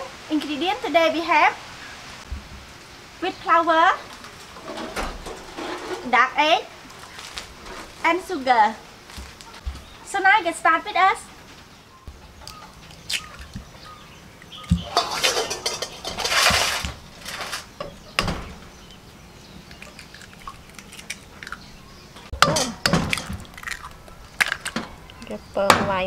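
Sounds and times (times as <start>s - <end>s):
eggs cracking on glass bowl: 19.7s - 21.7s, 22.5s - 25.2s.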